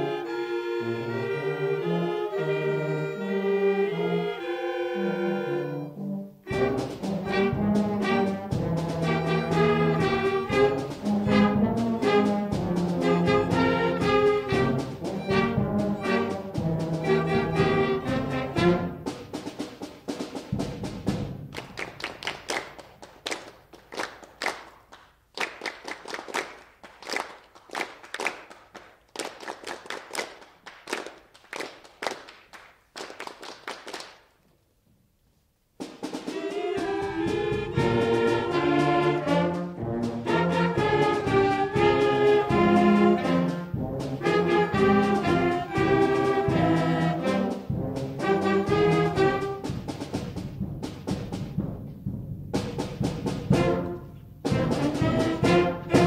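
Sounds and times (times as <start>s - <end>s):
concert band playing chords: 6.5s - 19.6s
percussion hits: 6.5s - 23.1s, 35.8s - 56.0s.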